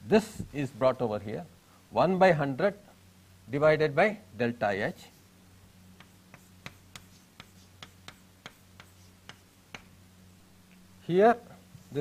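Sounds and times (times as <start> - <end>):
low electrical hum: 0.0 - 12.0
faint writing taps and clicks: 6.0 - 9.9.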